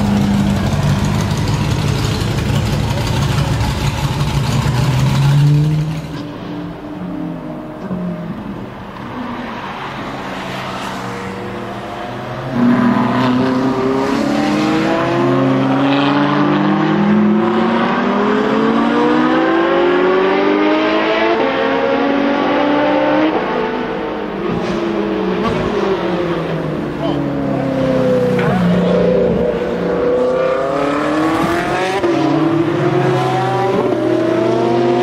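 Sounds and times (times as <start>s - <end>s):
sports car engine accelerating: 11.4s - 35.0s.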